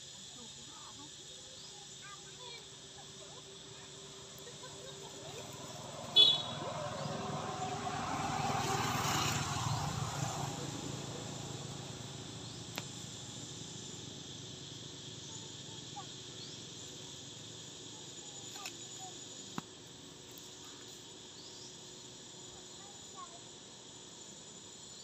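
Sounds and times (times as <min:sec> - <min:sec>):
faint chirps: 0:00.0 - 0:07.8, 0:12.0 - 0:25.0
insects droning: 0:00.0 - 0:25.0
motorbike passing: 0:04.8 - 0:14.0.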